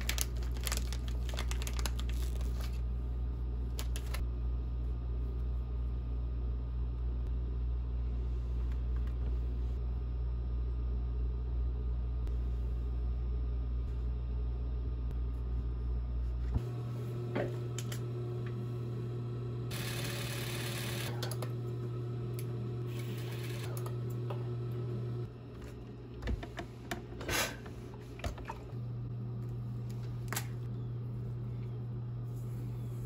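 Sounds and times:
sewing machine motor humming: 0:16.7 - 0:25.3.

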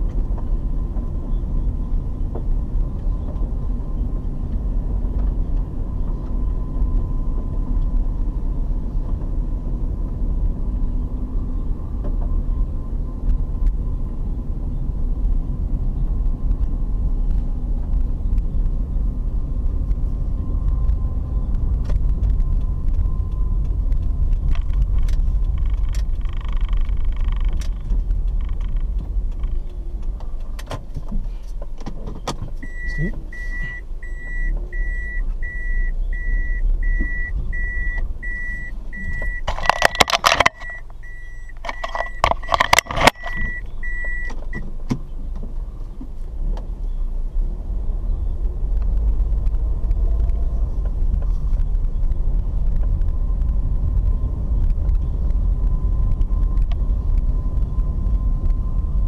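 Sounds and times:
road and engine rumble: 0:00.0 - 0:59.0
electronic car beep: 0:32.6 - 0:44.7
knocks and rattles: 0:39.2 - 0:44.6.

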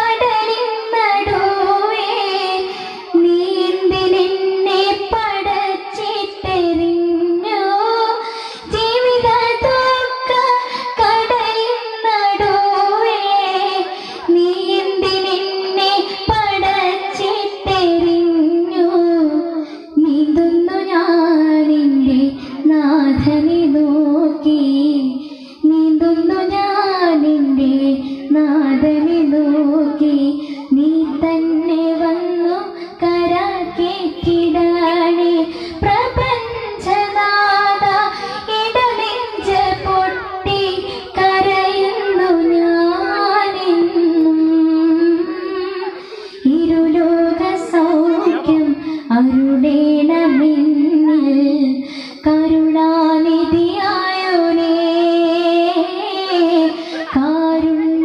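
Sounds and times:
person singing into a microphone: 0:00.0 - 0:58.0
singer breathing: 0:02.6 - 0:03.2, 0:08.2 - 0:08.8, 0:10.5 - 0:11.0, 0:13.8 - 0:14.3, 0:19.5 - 0:20.0, 0:22.3 - 0:22.7, 0:25.1 - 0:25.7, 0:28.0 - 0:28.3, 0:30.3 - 0:30.8, 0:32.6 - 0:33.0, 0:35.4 - 0:36.0, 0:37.8 - 0:38.5, 0:40.8 - 0:41.2, 0:45.8 - 0:46.6, 0:48.8 - 0:49.2, 0:51.7 - 0:52.3, 0:56.7 - 0:57.2.

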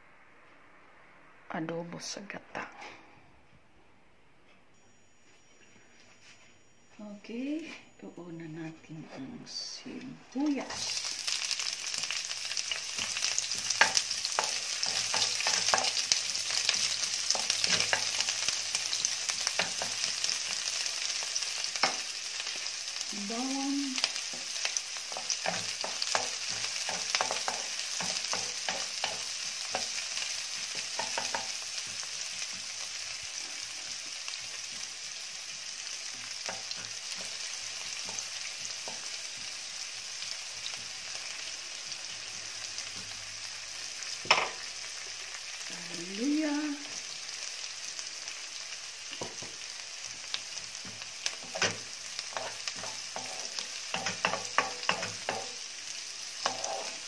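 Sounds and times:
onion and garlic sizzling: 0:07.0 - 0:57.0
wooden spoon scraping a pan: 0:12.9 - 0:20.6, 0:50.8 - 0:55.6, 0:56.4 - 0:57.0.

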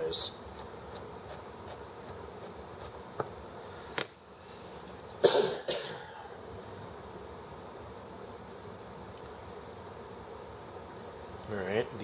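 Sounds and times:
short coughs: 0:05.2 - 0:06.3.

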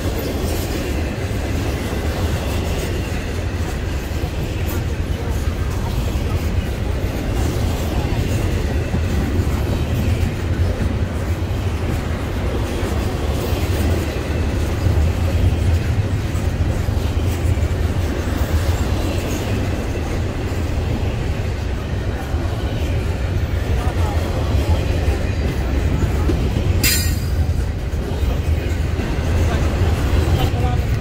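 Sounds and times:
rail cars rumbling past: 0:00.0 - 0:31.0.

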